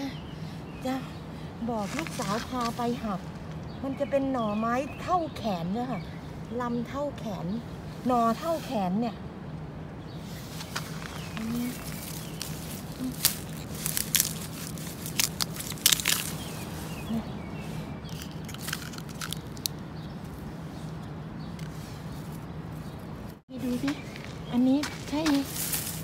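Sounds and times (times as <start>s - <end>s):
leaf litter crackling underfoot: 1.7s - 3.6s, 10.2s - 21.0s, 21.6s - 26.0s.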